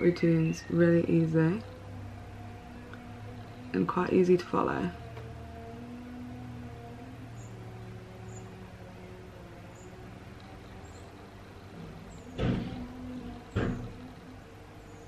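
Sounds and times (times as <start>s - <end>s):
faint low hum: 0.0s - 15.0s
knocks or thumps: 12.3s - 14.1s.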